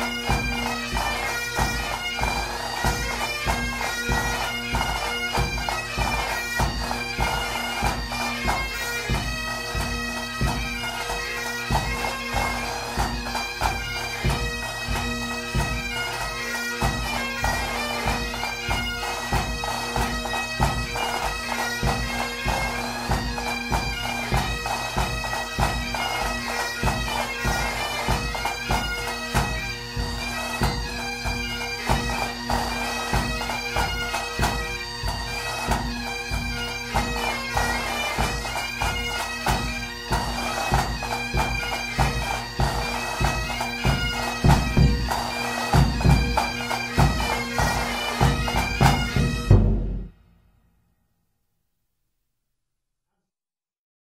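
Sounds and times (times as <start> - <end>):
bagpipes playing march: 0.0 - 50.2
drum beat: 40.2 - 50.2.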